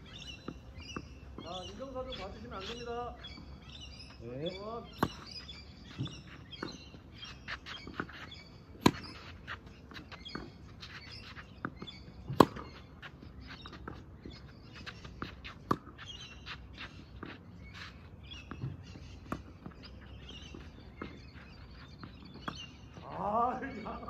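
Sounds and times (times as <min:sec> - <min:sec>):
birds chirping: 0:00.0 - 0:24.0
tennis racket hitting ball: 0:08.8 - 0:10.6, 0:11.6 - 0:12.8.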